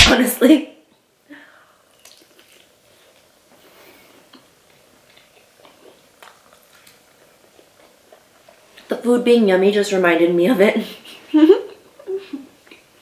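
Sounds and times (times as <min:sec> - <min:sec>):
chewing fried chicken: 0:01.9 - 0:08.9.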